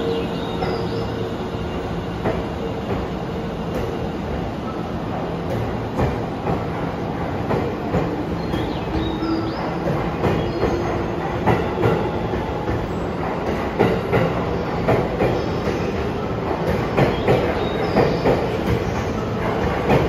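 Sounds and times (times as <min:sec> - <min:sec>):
electric train rolling past: 0:00.0 - 0:20.0
train wheels clicking over rail joints: 0:05.1 - 0:20.0.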